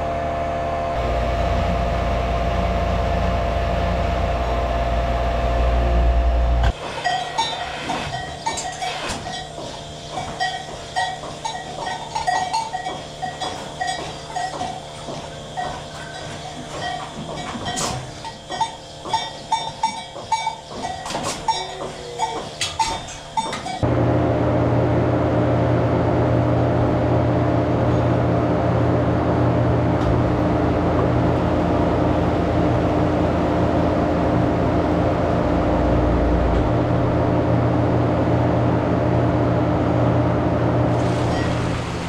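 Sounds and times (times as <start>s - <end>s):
milking machinery hum: 0.0s - 42.0s
metallic clanks: 6.7s - 23.8s.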